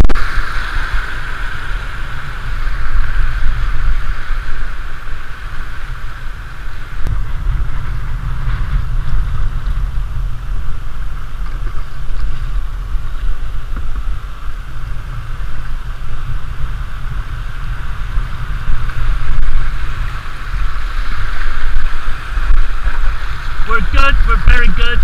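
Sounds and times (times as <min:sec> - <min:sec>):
wind rumble on microphone: 0:00.0 - 0:25.0
river rapids rushing: 0:18.4 - 0:25.0.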